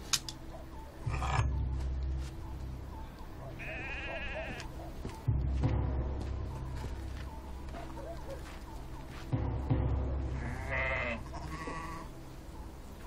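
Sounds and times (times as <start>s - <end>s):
sharp click: 0.1s - 0.4s
lamb bleating: 1.1s - 1.5s, 3.6s - 4.7s, 10.4s - 12.1s.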